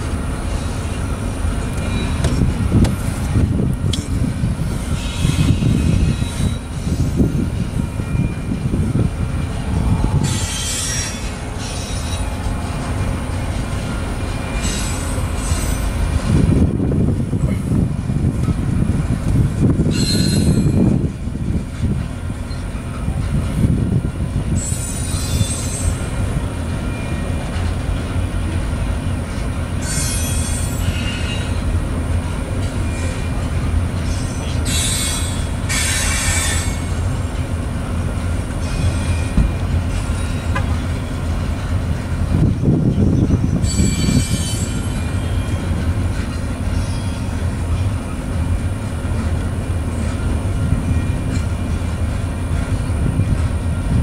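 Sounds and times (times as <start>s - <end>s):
train wheels rumbling on rails: 0.0s - 54.0s
high-pitched wheel squeal: 4.9s - 7.3s, 9.8s - 12.4s, 19.9s - 20.9s, 24.6s - 26.0s, 43.1s - 45.6s.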